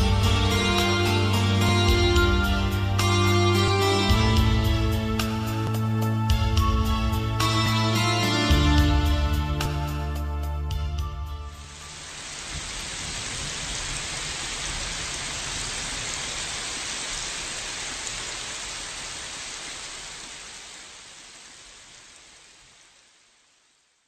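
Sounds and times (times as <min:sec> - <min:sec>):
rain falling steadily: 0:08.4 - 0:24.0.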